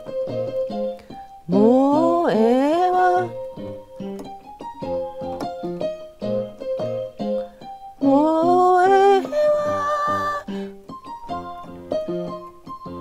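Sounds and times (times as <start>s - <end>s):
keyboard playing pop chords: 0.0s - 13.0s
woman singing: 1.5s - 3.4s, 8.0s - 10.6s.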